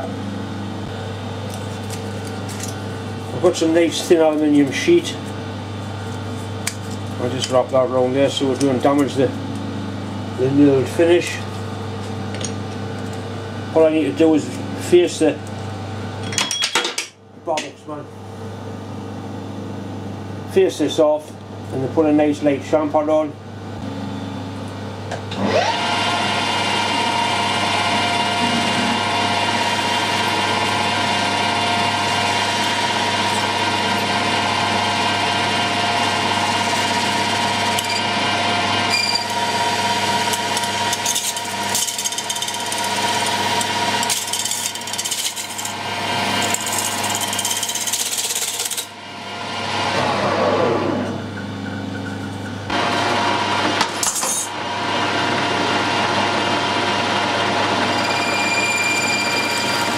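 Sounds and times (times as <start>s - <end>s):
metal lathe whining: 25.3s - 52.1s, 52.7s - 59.9s.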